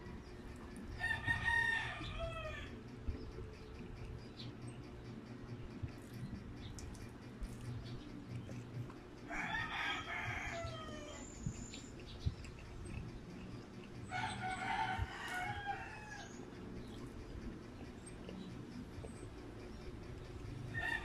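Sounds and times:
rooster crowing: 1.0s - 2.8s, 9.3s - 11.4s, 14.1s - 16.5s, 20.7s - 21.0s.

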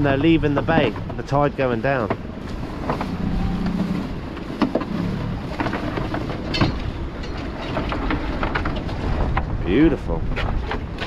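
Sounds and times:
outboard motor running: 0.0s - 9.4s
water noise: 0.0s - 11.0s
wind: 0.0s - 11.0s
net knocking and clattering: 4.3s - 9.6s.

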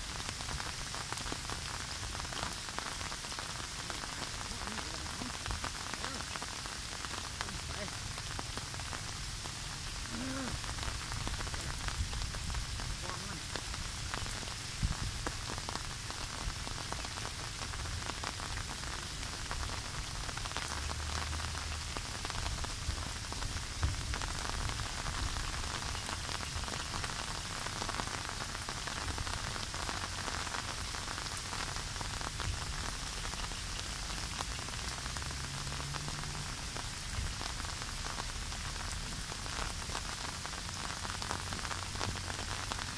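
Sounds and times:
heavy rain falling: 0.0s - 42.9s
wind rumbling on microphone: 8.8s - 15.6s, 22.3s - 26.8s.

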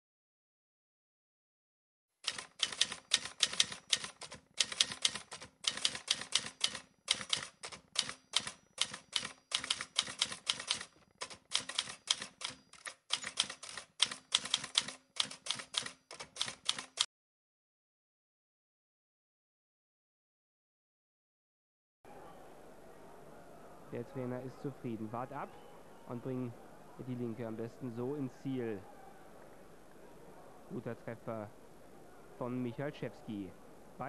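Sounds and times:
typewriter typing: 2.2s - 17.1s.

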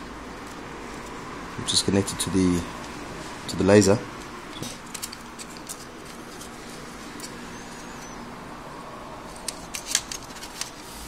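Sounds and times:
low steady hum: 0.0s - 11.0s.

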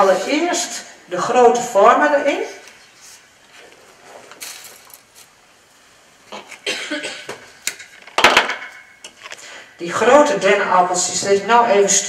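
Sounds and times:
dried flowers rustling: 2.5s - 5.8s.

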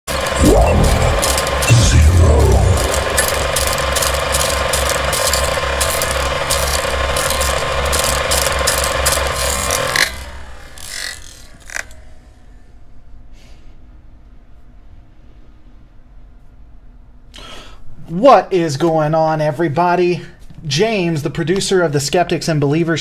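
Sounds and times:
steady hum: 0.1s - 10.8s
film projector clatter: 0.1s - 12.0s
short whoosh: 0.4s - 3.6s.

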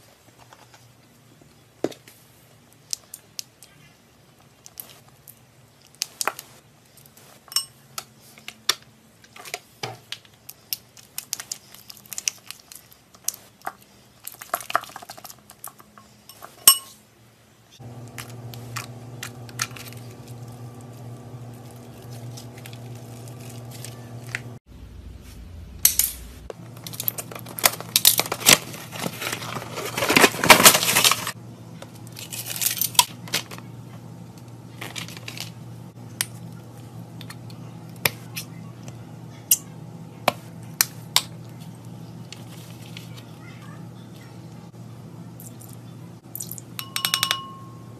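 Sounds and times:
plastic packaging crinkling: 17.8s - 24.6s, 26.6s - 31.4s.

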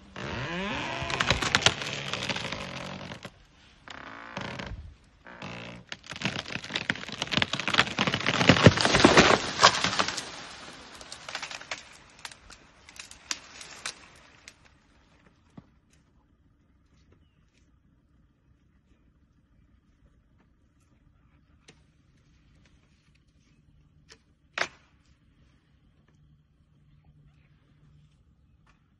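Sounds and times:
branches snapping: 0.0s - 4.7s, 5.3s - 14.7s, 24.6s - 24.8s
wood cracking and tree crashing: 0.0s - 14.7s
tree trunk creaking and groaning: 0.0s - 15.6s.

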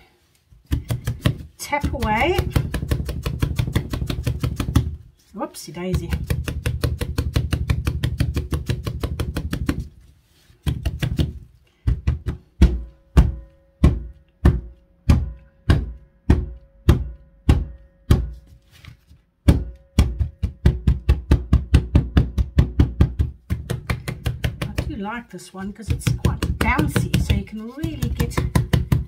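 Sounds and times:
mould knocking on tabletop: 19.5s - 25.0s, 25.8s - 29.0s.

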